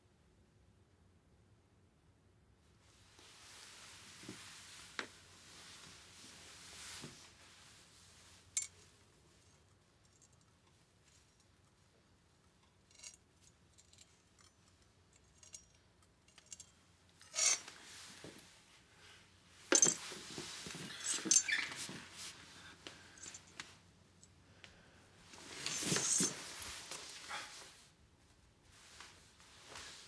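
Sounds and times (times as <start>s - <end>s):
claws clicking and scraping door: 12.6s - 17.8s
knocks and scuffling: 19.6s - 23.7s, 25.3s - 27.7s.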